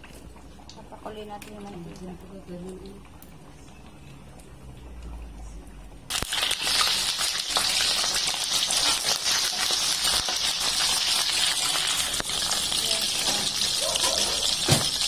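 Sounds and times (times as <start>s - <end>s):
fish deep-frying in oil: 6.1s - 15.0s.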